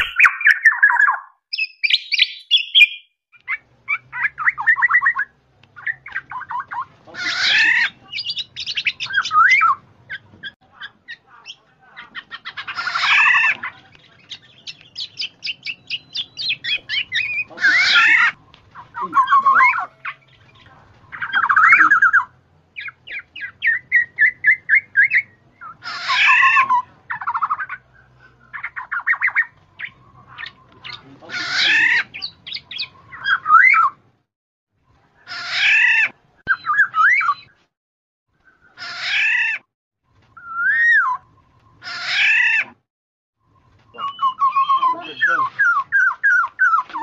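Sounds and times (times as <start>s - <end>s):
oriole calling: 0.0s - 34.0s, 43.8s - 47.0s.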